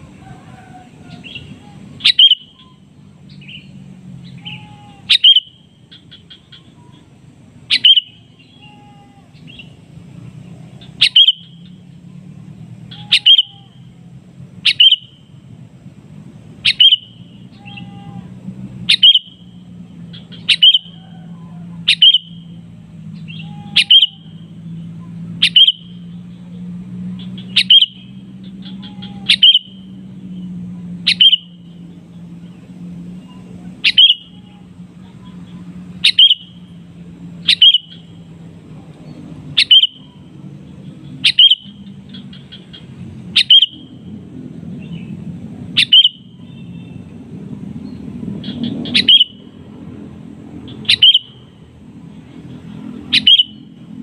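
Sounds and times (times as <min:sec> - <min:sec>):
bird giving sharp calls: 0:00.2 - 0:07.1, 0:07.7 - 0:09.8, 0:10.7 - 0:11.9, 0:12.8 - 0:13.9, 0:14.6 - 0:15.3, 0:16.6 - 0:26.2, 0:27.1 - 0:31.8, 0:33.2 - 0:38.3, 0:39.5 - 0:40.3, 0:40.9 - 0:44.1, 0:45.7 - 0:47.0, 0:48.4 - 0:49.6, 0:50.6 - 0:51.6, 0:53.0 - 0:53.8.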